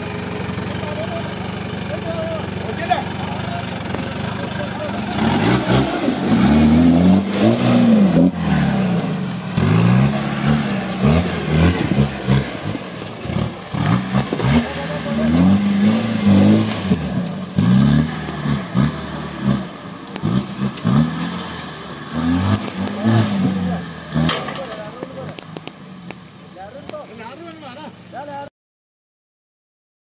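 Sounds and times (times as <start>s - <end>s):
jeep engine revving hard: 0.0s - 25.7s.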